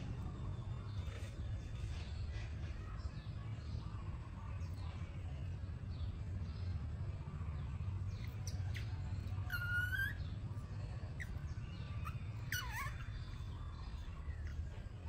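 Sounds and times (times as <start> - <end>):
steady low hum: 0.0 - 15.0
baby monkey whistle-like calls: 8.2 - 10.4, 11.1 - 14.6
monkey brief chirps: 8.4 - 10.2, 12.0 - 13.4.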